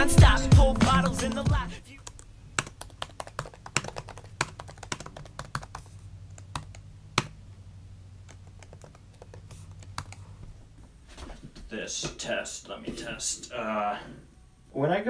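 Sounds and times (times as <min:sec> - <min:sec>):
low steady hum: 0:00.0 - 0:15.0
laptop keyboard clicks: 0:02.1 - 0:07.4, 0:08.3 - 0:10.2.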